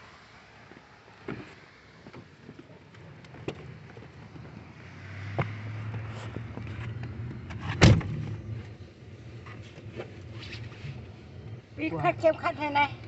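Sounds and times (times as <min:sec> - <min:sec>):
car door shutting: 0:05.3 - 0:08.4.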